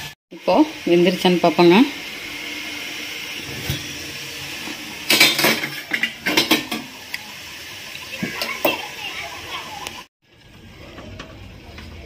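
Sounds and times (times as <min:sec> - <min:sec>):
metal lid clanking and scraping: 0:05.0 - 0:06.9.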